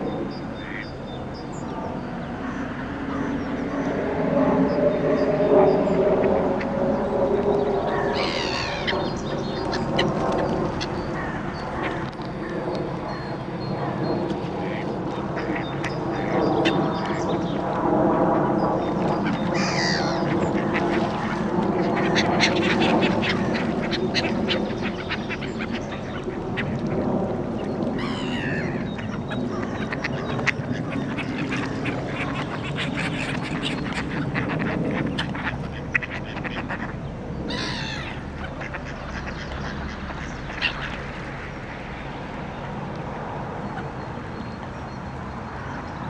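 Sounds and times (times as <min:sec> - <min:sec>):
gull calls: 0:07.8 - 0:13.4, 0:19.1 - 0:27.0, 0:27.9 - 0:41.6
ducks quacking: 0:19.1 - 0:27.0, 0:28.0 - 0:41.9.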